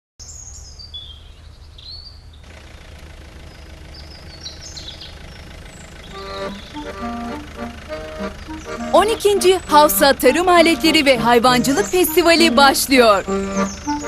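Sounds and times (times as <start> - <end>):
birds chirping: 0.2 - 14.0
tractor engine running: 2.3 - 14.0
tune: 6.1 - 14.0.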